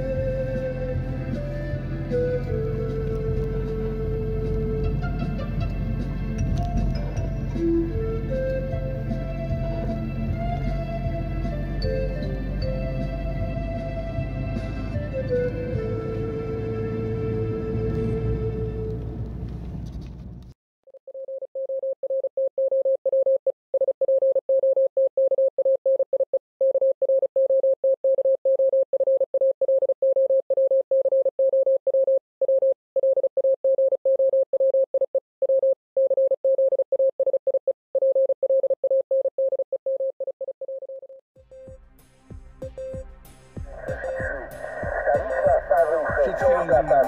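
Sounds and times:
morse code beeps: 0:21.1 - 0:41.2, 0:43.8 - 0:47.0.

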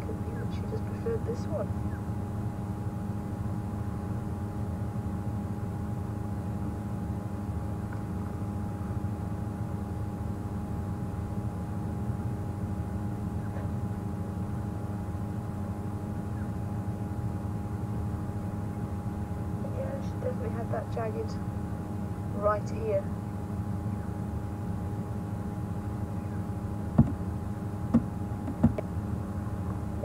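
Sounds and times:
vehicle engine idling: 0:00.0 - 0:04.8
faint constant hum: 0:00.0 - 0:30.0.

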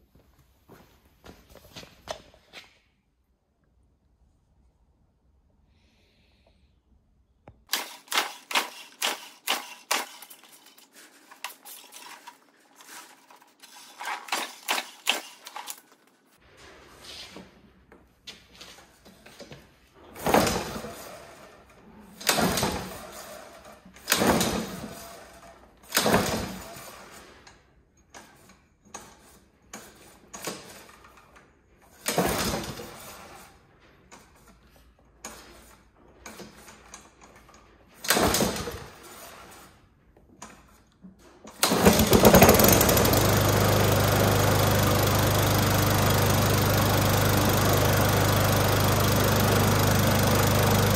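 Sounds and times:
recoil starter cord yanks: 0:07.6 - 0:16.2, 0:35.2 - 0:39.4, 0:40.4 - 0:50.9
lawn mower engine running: 0:07.7 - 0:16.1, 0:41.6 - 0:50.9.

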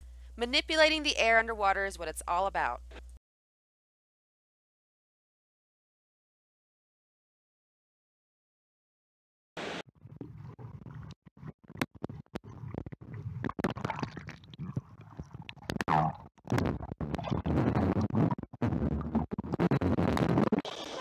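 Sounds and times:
underwater bubbling and gurgling: 0:10.0 - 0:21.0
underwater clicks and knocks: 0:10.1 - 0:17.8.

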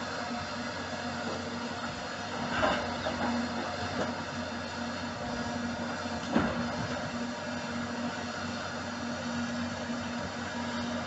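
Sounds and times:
excavator engines humming: 0:00.0 - 0:11.0.

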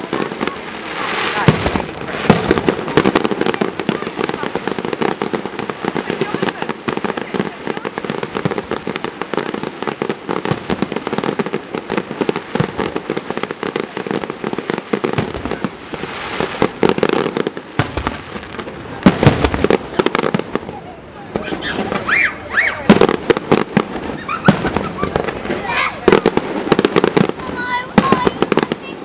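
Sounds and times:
fireworks bangs and crackling: 0:00.0 - 0:29.0.

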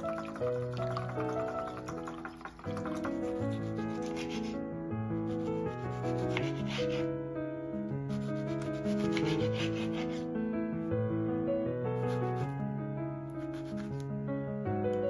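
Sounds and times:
soft background music: 0:00.0 - 0:15.0
knife slicing tomato on board: 0:02.6 - 0:04.6, 0:05.8 - 0:07.1, 0:08.1 - 0:10.2.

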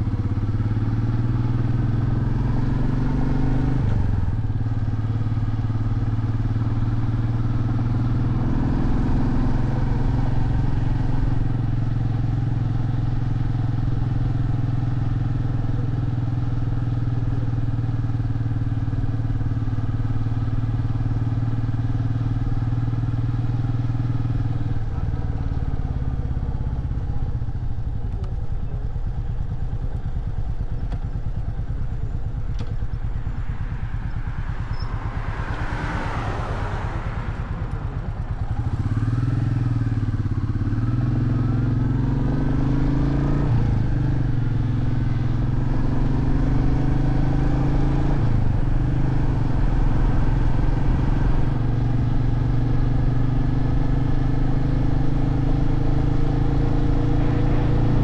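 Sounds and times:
motorcycle engine: 0:00.0 - 0:58.0.

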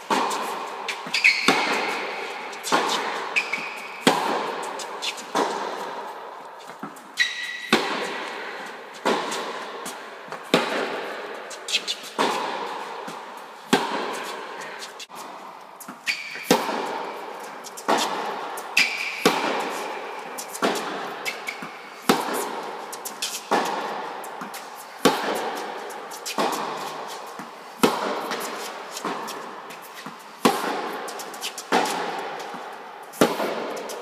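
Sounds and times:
racket hitting tennis ball: 0:00.0 - 0:34.0
tennis ball bouncing: 0:00.0 - 0:34.0
shoe squeaks on court: 0:00.9 - 0:02.4, 0:03.0 - 0:04.0, 0:07.1 - 0:07.7, 0:16.0 - 0:16.7, 0:18.8 - 0:19.2.

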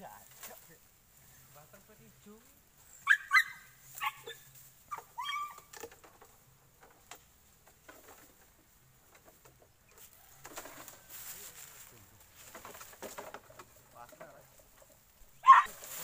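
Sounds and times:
crackles through dry bamboo litter: 0:00.0 - 0:16.0
dog yelping and whining: 0:03.0 - 0:05.7, 0:15.4 - 0:15.7.

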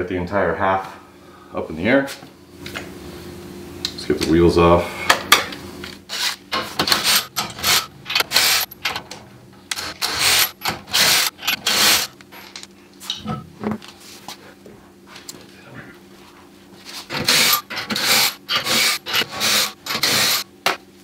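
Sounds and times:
impact wrench bursts: 0:06.9 - 0:08.8, 0:09.7 - 0:12.2.

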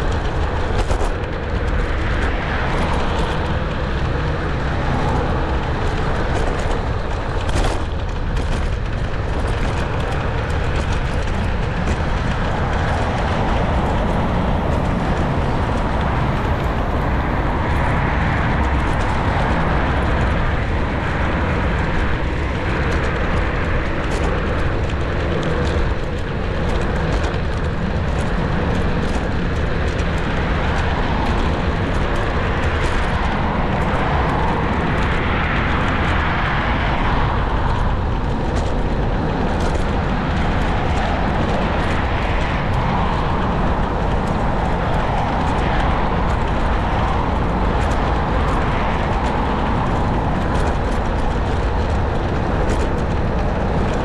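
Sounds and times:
tyre and road rumble: 0:00.0 - 0:54.0
wind on microphone: 0:00.0 - 0:54.0.

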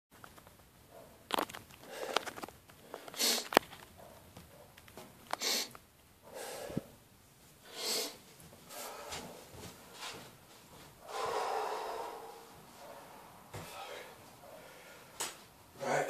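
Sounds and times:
man breathing forcefully through nose: 0:01.8 - 0:03.6, 0:06.3 - 0:07.0, 0:07.6 - 0:10.2, 0:11.0 - 0:15.2.

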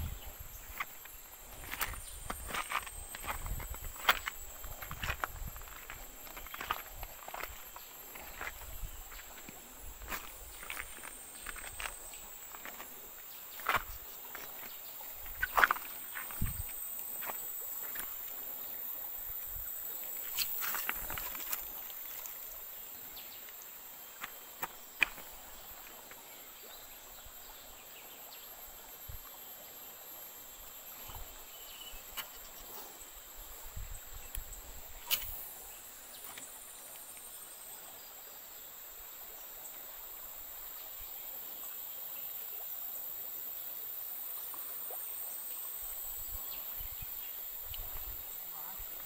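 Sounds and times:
insects buzzing: 0:00.0 - 0:49.0
stream running over stones: 0:00.0 - 0:49.0.

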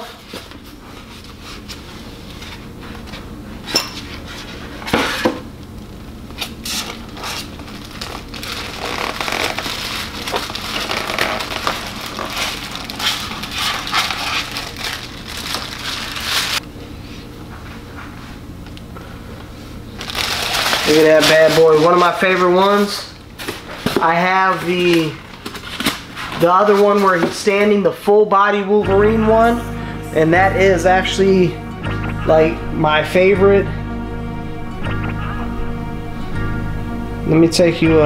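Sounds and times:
plastic bag crinkling: 0:06.7 - 0:16.6, 0:20.0 - 0:22.9
foam packing being pulled open: 0:07.4 - 0:16.6.

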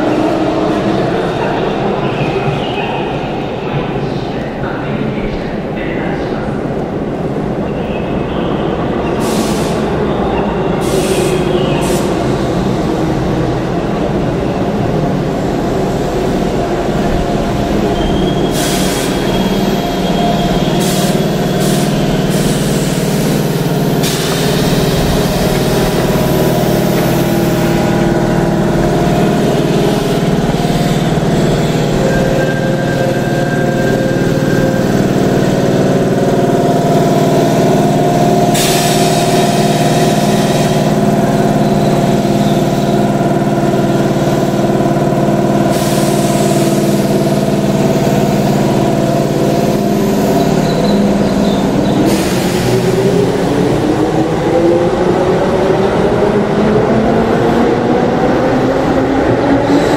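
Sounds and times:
train air compressor humming: 0:09.2 - 0:09.9, 0:15.2 - 0:55.5
short air hisses: 0:38.6 - 0:39.6.

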